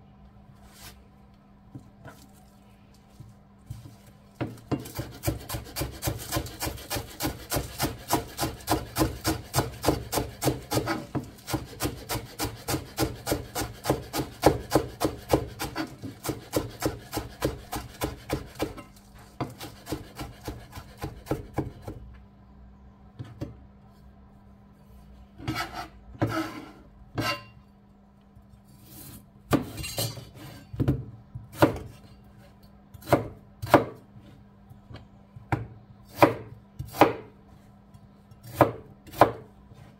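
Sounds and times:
knife chopping on wooden board: 0:04.4 - 0:22.0, 0:30.8 - 0:32.0, 0:33.0 - 0:34.0, 0:35.5 - 0:37.3, 0:38.4 - 0:39.9.

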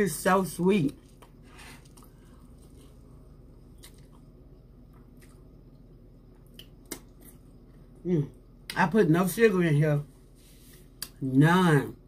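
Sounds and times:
low steady hum: 0:00.0 - 0:12.0
person chewing: 0:00.9 - 0:08.0.

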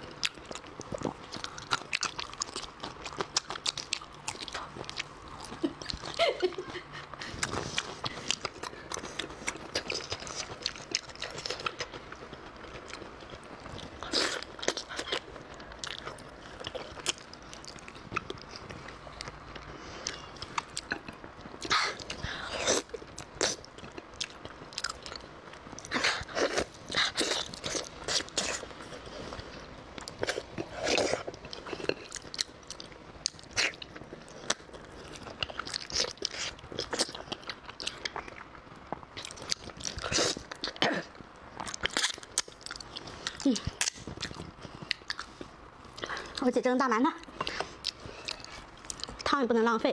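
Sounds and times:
person chewing food: 0:00.0 - 0:46.5, 0:47.2 - 0:49.3.

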